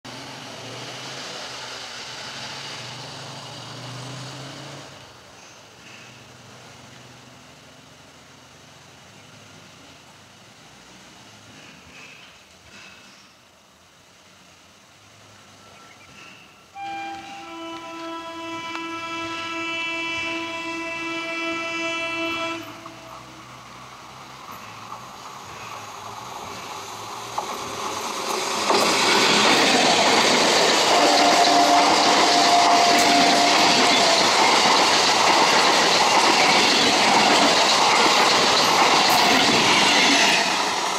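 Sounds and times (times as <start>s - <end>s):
train rumbling with hiss: 0.1s - 40.9s
train air horn blast: 16.7s - 23.4s, 30.9s - 34.0s.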